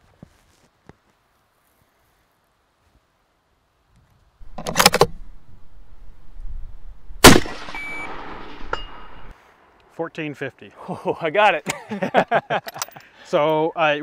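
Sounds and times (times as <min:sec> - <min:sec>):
rifle shot: 0:07.1 - 0:09.3
steel target ringing: 0:07.2 - 0:09.3.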